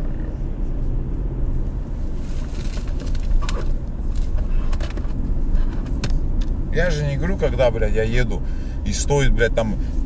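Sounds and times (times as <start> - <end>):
car engine and cabin rumble: 0.0 - 10.0.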